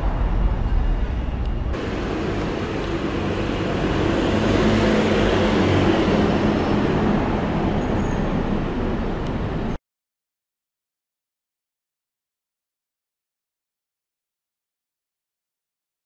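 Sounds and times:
steady hum: 0.0 - 5.3
bus approaching: 0.0 - 9.8
cars passing: 0.0 - 9.8
motor scooter passing: 1.8 - 7.8.

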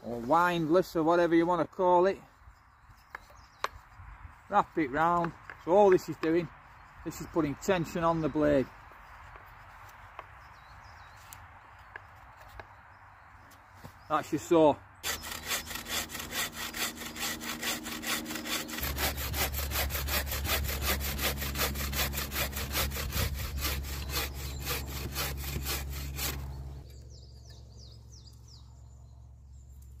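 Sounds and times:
bucksaw cutting through log: 15.0 - 26.8.

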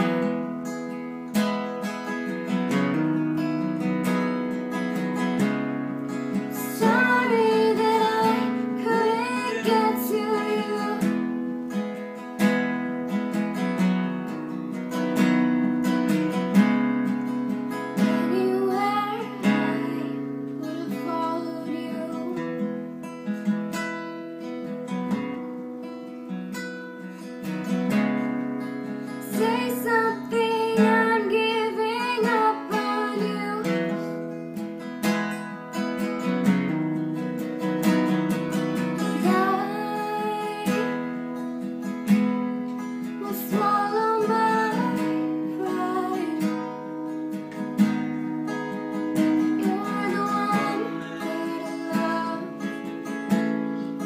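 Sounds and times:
acoustic guitar strumming: 0.0 - 54.0
young woman singing a ballad: 6.1 - 11.6, 18.0 - 22.8, 29.1 - 34.2, 39.0 - 41.4, 42.8 - 47.1, 49.3 - 53.2.

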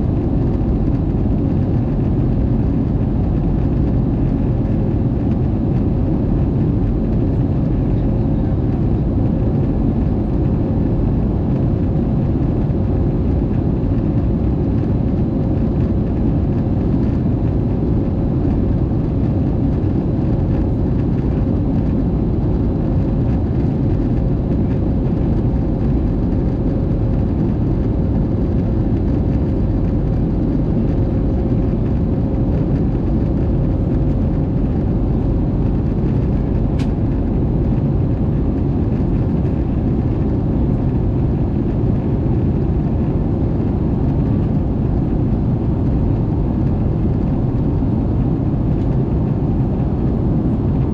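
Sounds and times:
jet engine and airflow rumble: 0.0 - 50.9.

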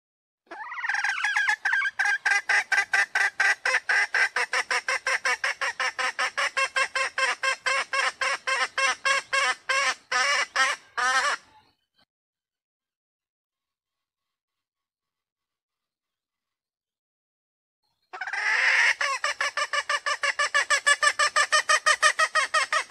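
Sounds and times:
hen clucking: 0.5 - 11.7, 18.2 - 22.9.

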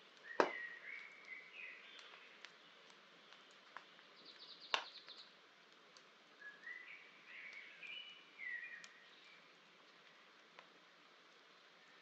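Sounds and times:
campfire crackling and popping: 0.0 - 12.0
bird singing: 0.2 - 2.8, 4.1 - 5.4, 6.4 - 9.5.

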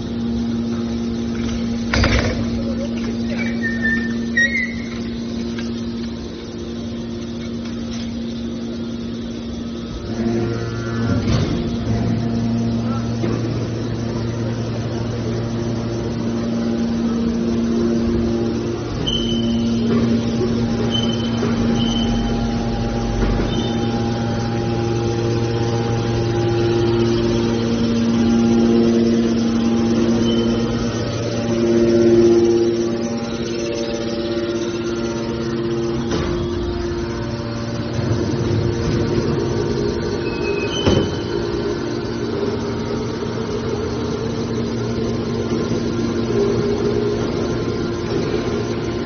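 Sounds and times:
higher machine tone: 0.0 - 49.0
hydraulic power unit humming: 0.0 - 49.0
short high squeals: 3.3 - 5.2, 19.0 - 19.9.

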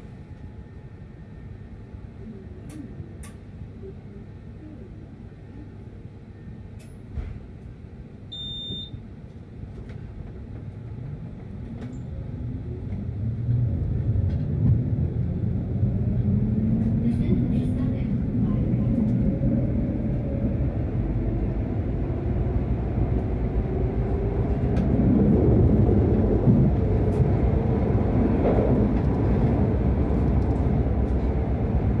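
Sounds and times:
short high beep: 8.4 - 9.0
tram rumbling: 9.0 - 32.0.

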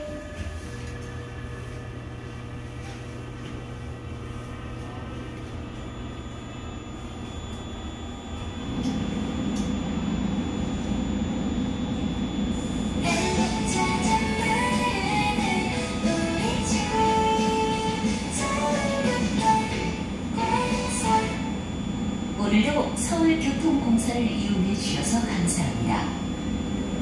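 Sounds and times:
train running rumble: 0.0 - 6.1, 8.1 - 21.8
faint whining tones: 0.0 - 27.0
low hum: 0.0 - 27.0.

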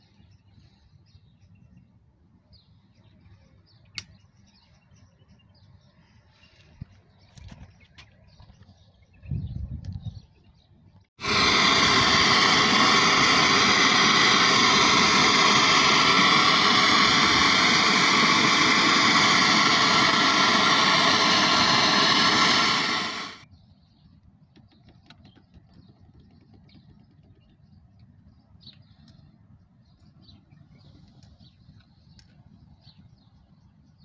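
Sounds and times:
gas blowing through pipes hiss: 11.2 - 23.5.

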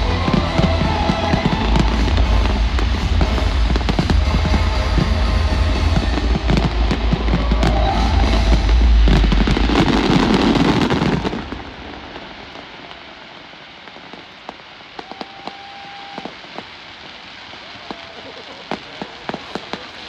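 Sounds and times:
music: 0.0 - 10.6
deep rumbling: 0.0 - 12.8
fireworks bangs and crackles: 0.0 - 20.0.

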